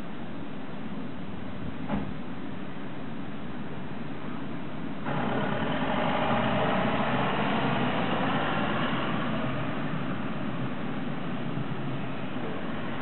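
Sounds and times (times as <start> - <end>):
heavy vehicle engine running: 4.6 - 13.0.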